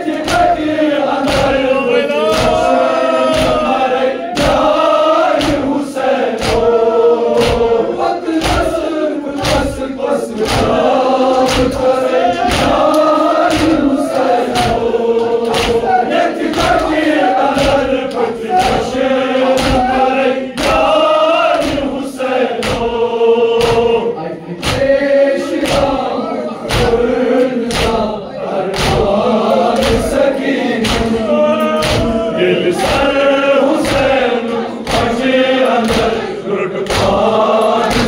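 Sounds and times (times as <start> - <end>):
men chanting in unison: 0.0 - 38.0
hands striking chests: 14.5 - 15.8.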